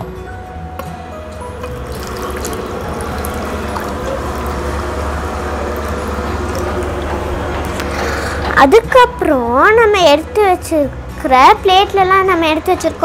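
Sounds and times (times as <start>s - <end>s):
water pouring into a bowl: 1.6s - 8.4s.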